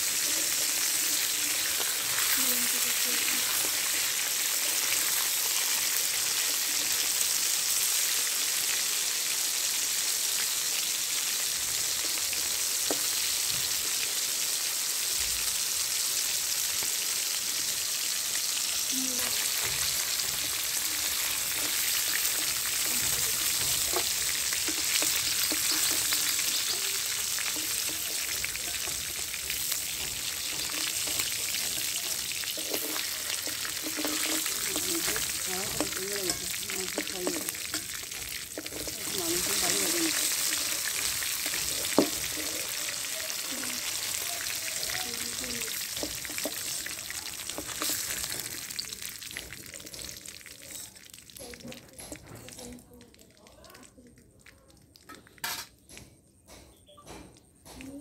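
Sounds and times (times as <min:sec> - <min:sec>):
chicken sizzling in hot oil: 0:00.0 - 0:55.6
metal spatula scraping wok: 0:19.2 - 0:48.8.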